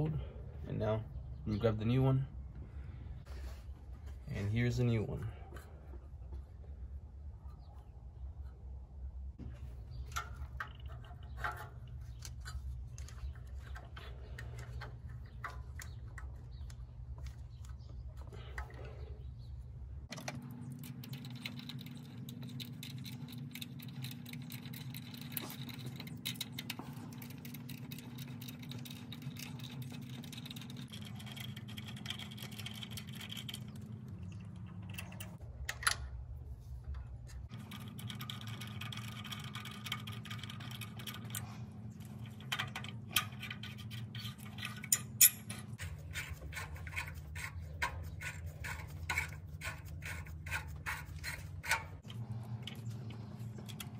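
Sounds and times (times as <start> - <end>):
steady low hum: 0.0 - 53.9
small metal clicks and scrapes: 10.0 - 19.0, 20.0 - 36.0, 36.9 - 53.9.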